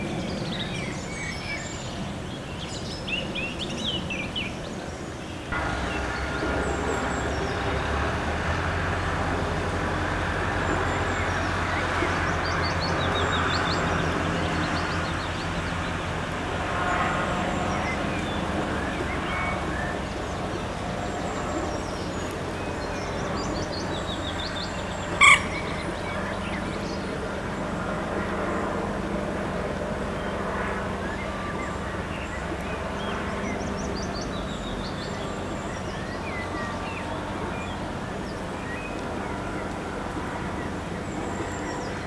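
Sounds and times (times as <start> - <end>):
faint hum: 4.6 - 42.0
small birds chirping: 16.8 - 27.3.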